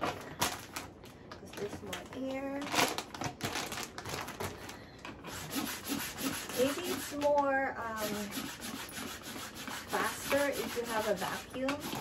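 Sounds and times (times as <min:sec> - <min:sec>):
hand vacuum pump rasping strokes: 0:05.2 - 0:07.4, 0:08.0 - 0:12.0.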